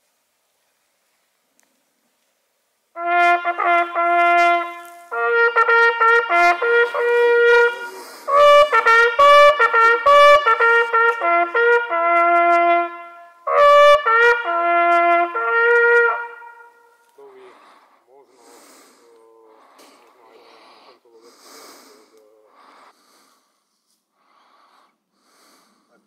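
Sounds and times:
hunting horn fanfare: 3.0s - 17.4s
player breathing: 7.8s - 8.4s, 17.2s - 26.0s.

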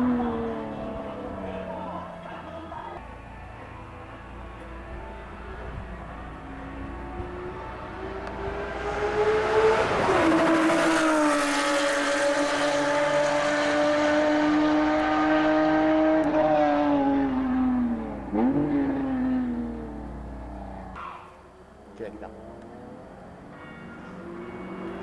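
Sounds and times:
sports car engine revving: 6.4s - 21.0s, 21.9s - 25.0s.

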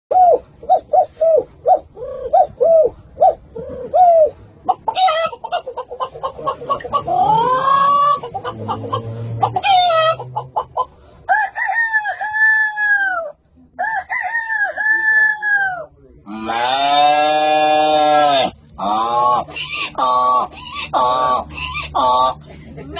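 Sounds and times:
man imitating chicken clucks: 0.1s - 10.9s, 14.4s - 22.4s
man imitating rooster crow: 11.3s - 19.4s.

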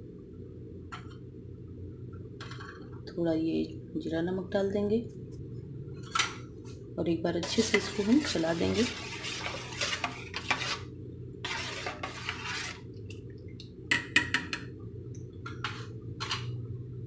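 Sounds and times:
spoon scraping metal bowl: 7.4s - 12.9s, 15.6s - 16.5s
liquid swishing: 7.6s - 13.6s.

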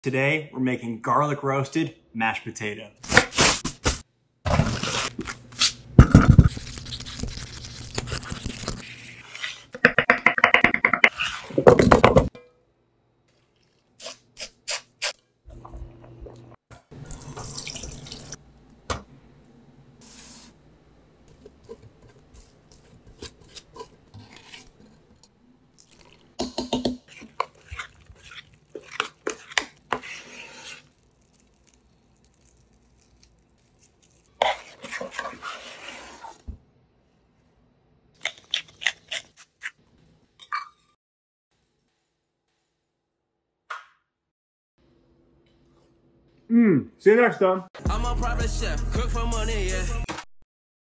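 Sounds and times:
running water: 17.0s - 18.4s.

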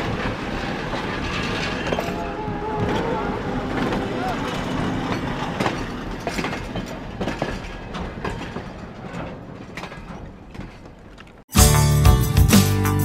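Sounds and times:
railway carriage clanking and creaking: 0.0s - 11.5s
music: 11.5s - 13.0s.

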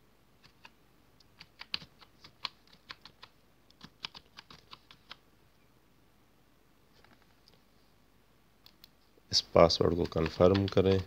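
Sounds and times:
computer keyboard typing: 1.3s - 5.2s, 9.8s - 11.0s.

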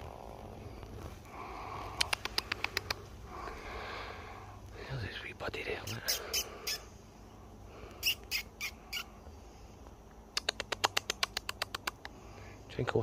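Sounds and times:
sharp clicking: 1.9s - 3.0s, 10.3s - 12.2s.

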